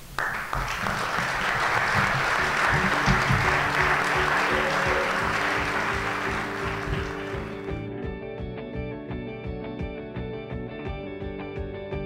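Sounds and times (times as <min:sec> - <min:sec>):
audience applauding: 0:00.0 - 0:07.8
quiet music: 0:01.0 - 0:12.0.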